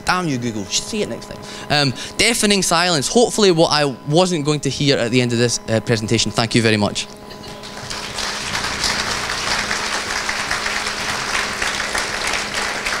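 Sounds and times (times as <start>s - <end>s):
audience applauding: 7.4s - 13.0s.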